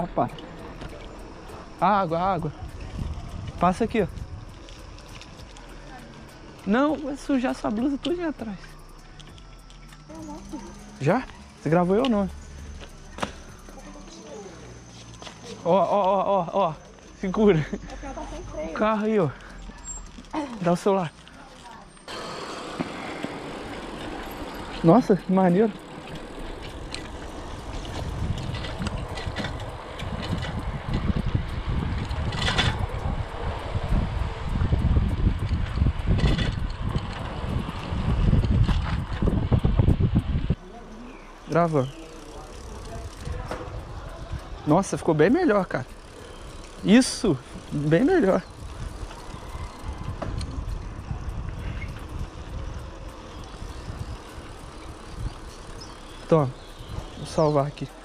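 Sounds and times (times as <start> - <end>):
wind buffeting microphone: 0.0 - 7.1, 22.2 - 40.6, 42.4 - 58.0
tyres hissing on road: 0.0 - 58.0.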